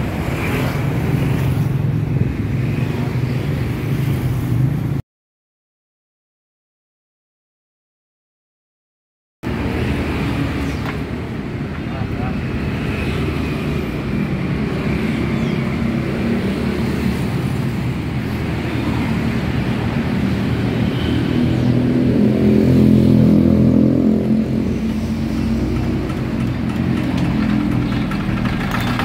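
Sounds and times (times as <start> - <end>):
small diesel engine humming: 25.0 - 29.0.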